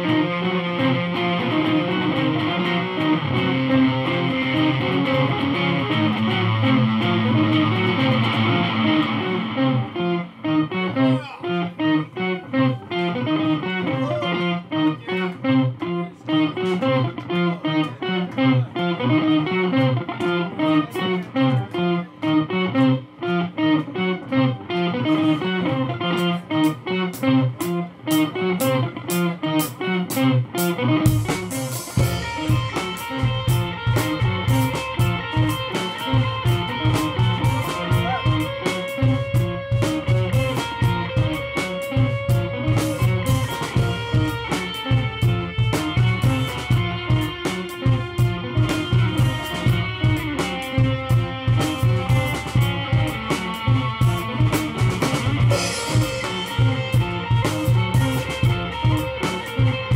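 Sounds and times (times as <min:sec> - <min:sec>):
picked electric guitar riff: 0:00.0 - 0:59.9
drum kit with kick drum: 0:26.2 - 0:59.9.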